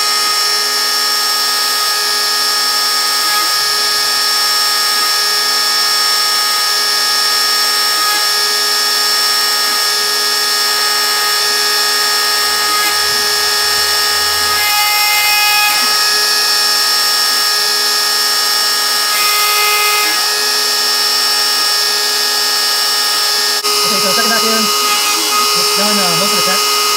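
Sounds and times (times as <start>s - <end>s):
router spindle high whine: 0.0s - 26.9s
low motor hum: 2.3s - 6.7s, 9.2s - 17.8s.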